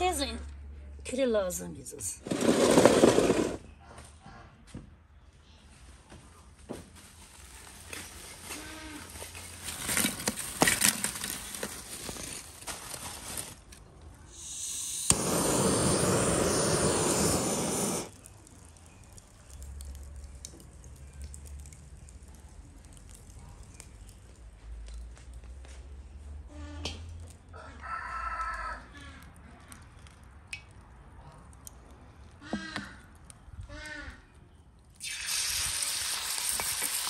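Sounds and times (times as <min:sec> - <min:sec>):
loud steady hiss: 0:14.3 - 0:18.2.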